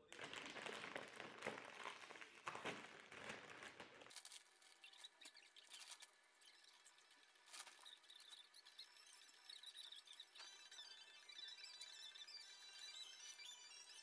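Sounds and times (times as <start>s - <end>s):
foil snack bag crinkling: 0.0s - 8.4s.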